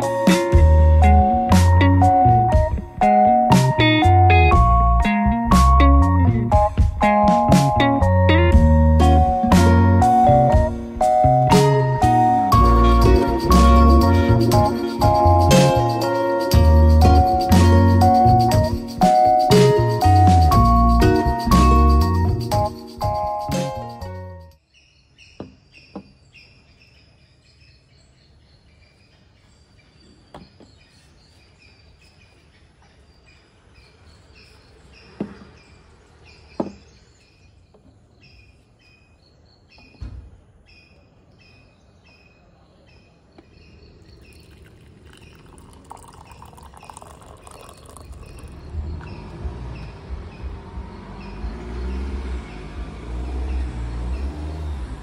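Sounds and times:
small birds chirping: 24.6 - 55.0.

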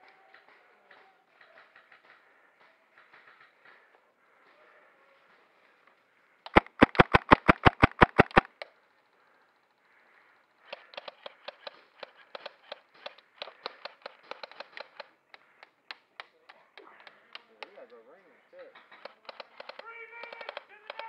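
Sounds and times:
faint pops and clicks: 6.4 - 8.8, 10.7 - 18.0, 18.8 - 21.0
airsoft gun rapid shots: 6.5 - 8.6, 19.0 - 21.0.

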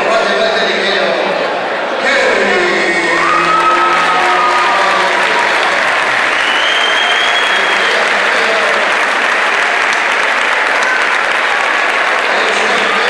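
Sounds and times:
crowd applauding and cheering: 2.2 - 13.0
long high whistle: 6.3 - 8.0.

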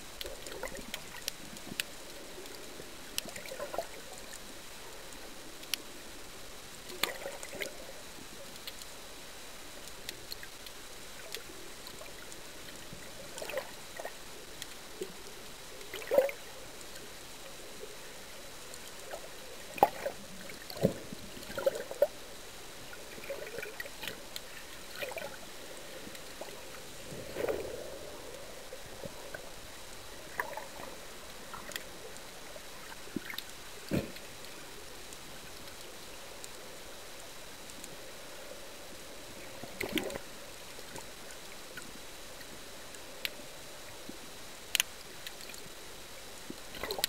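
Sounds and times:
water gurgles: 0.0 - 47.0
faint clicks: 0.2 - 5.9, 6.8 - 9.0, 9.8 - 17.3, 18.6 - 22.1, 23.1 - 38.0, 39.0 - 47.0
underwater hiss: 10.4 - 47.0.

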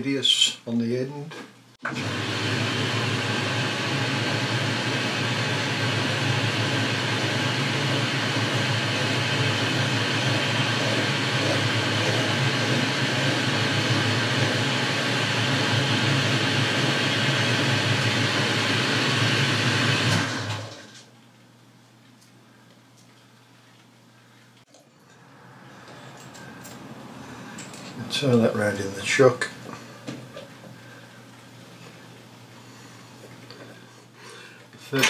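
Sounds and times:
metalworking lathe running: 1.9 - 20.8
file on spinning metal: 6.1 - 18.5.

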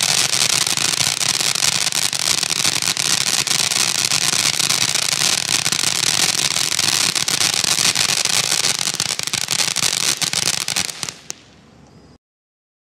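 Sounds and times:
firework fountain crackling: 0.0 - 11.6.

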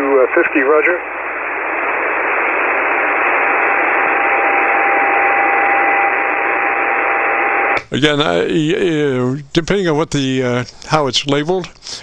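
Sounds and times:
radio band noise hiss: 0.0 - 9.1.

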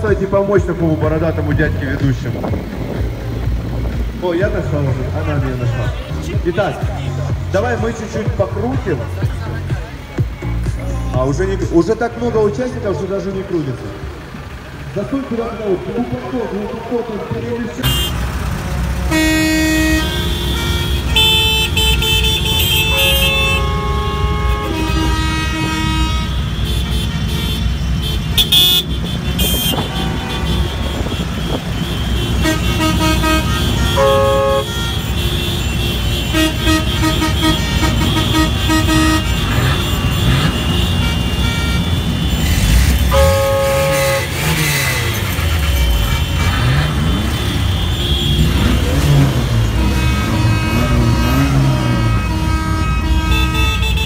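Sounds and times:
engines revving: 0.0 - 54.0
engines running: 0.0 - 54.0
vehicle horns honking: 15.6 - 54.0.

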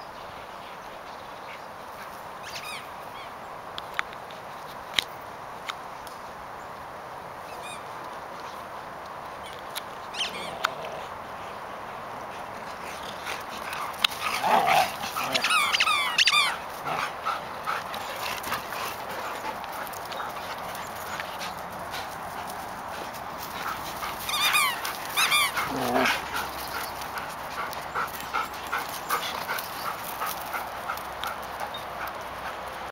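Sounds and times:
dogs barking and yelping: 13.1 - 21.6, 23.4 - 32.7.

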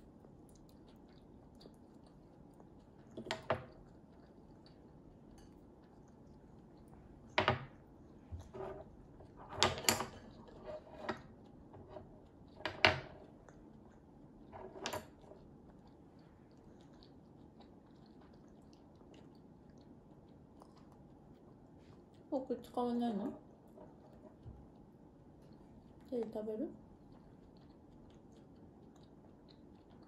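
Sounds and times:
spoon and dishes clinking on table: 9.5 - 11.2.

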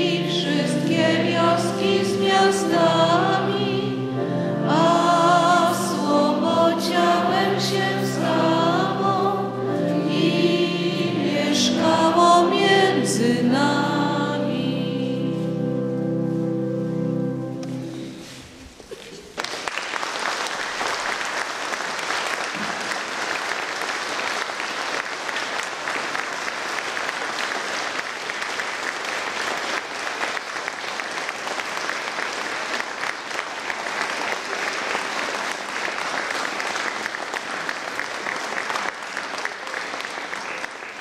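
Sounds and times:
audience applauding: 18.9 - 41.0.

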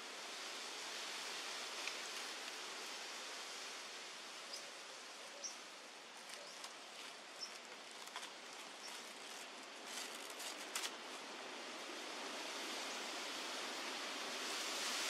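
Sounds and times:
steady outdoor hiss: 0.0 - 15.0
dry leaves crackling: 6.1 - 12.0.

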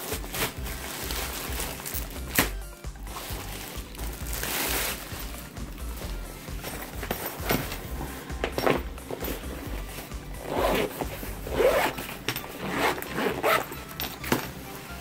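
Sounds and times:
fabric rustling: 0.0 - 15.0
zipper being pulled open: 8.7 - 14.3.

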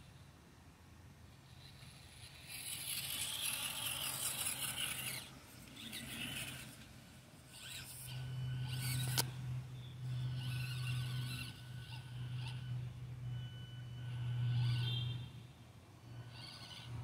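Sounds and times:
small electric motor whining: 1.1 - 17.0.

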